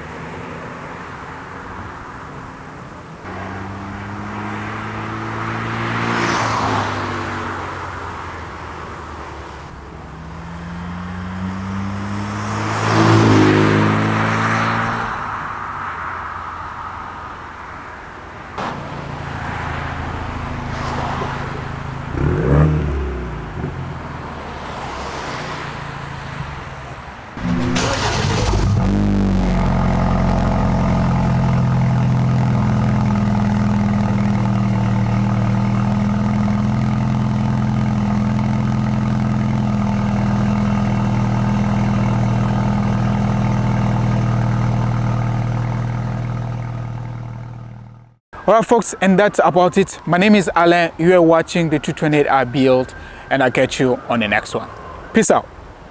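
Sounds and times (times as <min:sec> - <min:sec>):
car driving by: 0:03.2 - 0:08.3, 0:10.0 - 0:16.9, 0:18.6 - 0:48.5
car engine starting and idling: 0:18.6 - 0:48.2.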